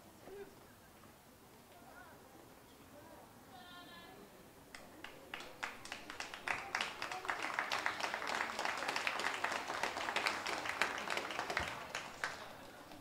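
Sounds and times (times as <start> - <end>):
spectators applauding: 4.8 - 13.0.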